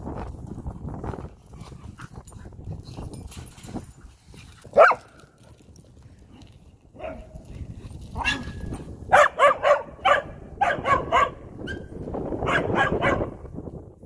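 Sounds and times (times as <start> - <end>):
dogs playing rough: 1.0 - 9.9
dogs barking: 4.7 - 5.2, 7.0 - 7.3, 8.2 - 8.5, 9.1 - 13.4.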